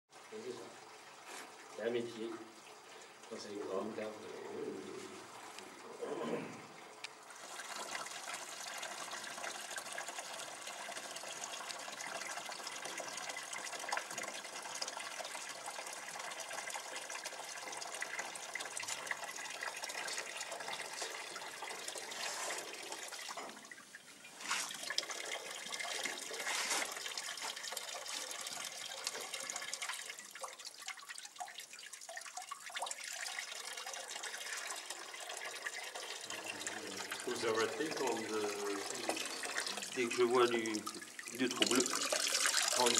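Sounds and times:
wine splashing into a vessel: 0:36.5 - 0:42.9.

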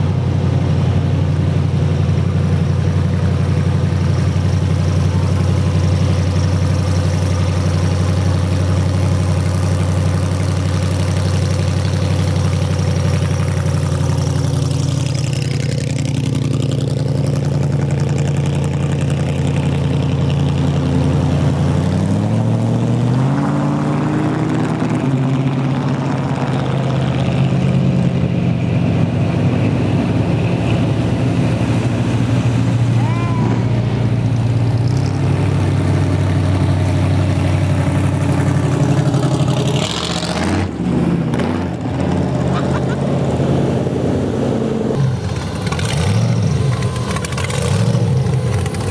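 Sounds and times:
car engines running: 0:00.0 - 0:48.9
engine revving up: 0:20.2 - 0:48.9.

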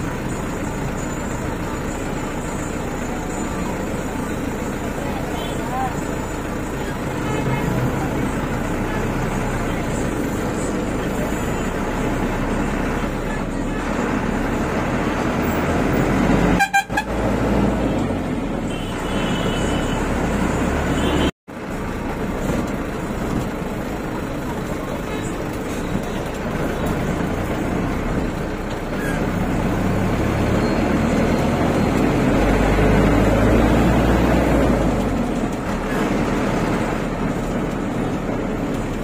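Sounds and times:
van engine and road rumble: 0:00.0 - 0:39.0
car and bus horns tooting: 0:15.9 - 0:21.4.

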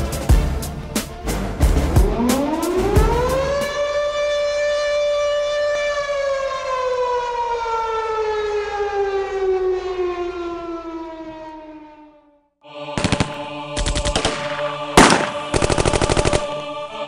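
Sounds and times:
air-raid siren wailing: 0:01.8 - 0:13.8.

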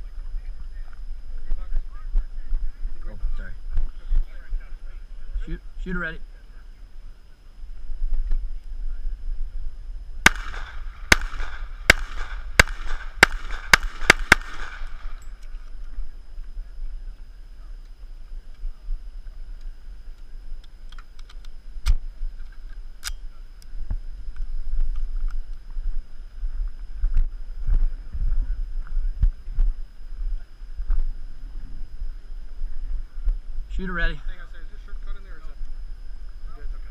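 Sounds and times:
pistol shots: 0:10.2 - 0:15.2.

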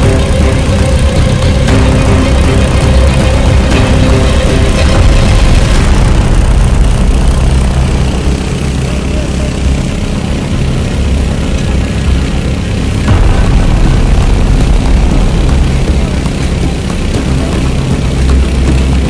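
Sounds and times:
large engine running: 0:00.0 - 0:19.0.

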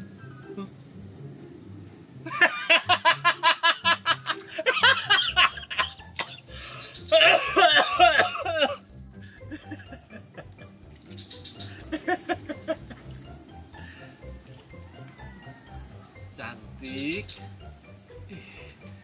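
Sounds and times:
man laughing hysterically: 0:02.2 - 0:10.7, 0:11.7 - 0:13.1.

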